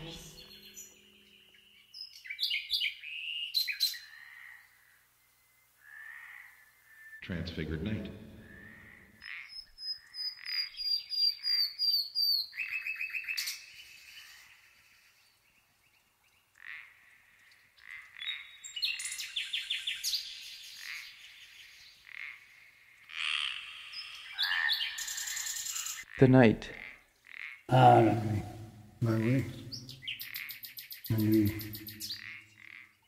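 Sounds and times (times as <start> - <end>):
birds chirping: 0.0 - 4.7, 6.8 - 33.0
frogs calling: 3.9 - 5.0, 5.8 - 7.3, 8.2 - 11.8, 16.6 - 19.2, 20.7 - 33.0.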